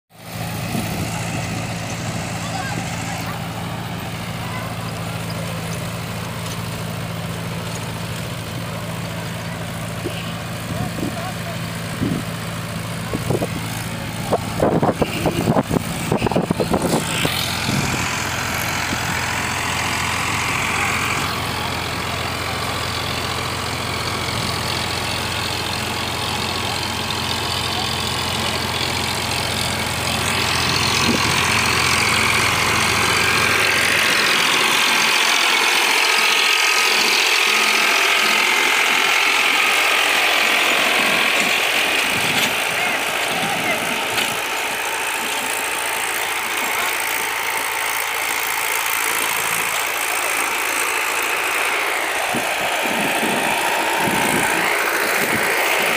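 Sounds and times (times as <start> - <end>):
tractor engine hum: 0.1 - 55.9
rotary tiller rattling soil: 0.2 - 55.9.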